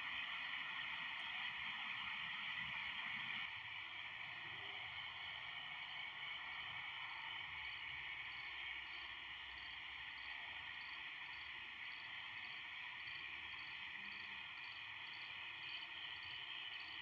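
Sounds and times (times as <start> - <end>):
insect night chorus: 4.4 - 17.0.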